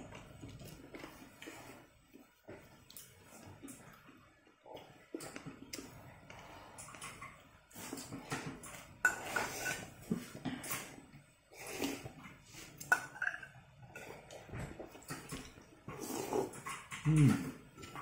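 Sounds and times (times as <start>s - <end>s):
spoon scraping in a bowl: 9.1s - 9.9s.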